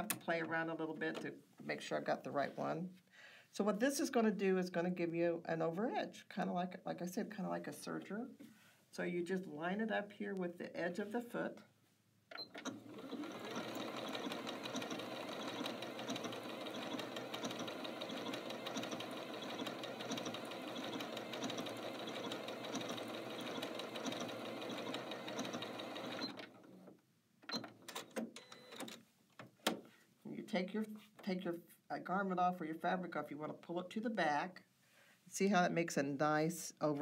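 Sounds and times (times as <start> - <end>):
sewing machine stitching: 12.4 - 26.8.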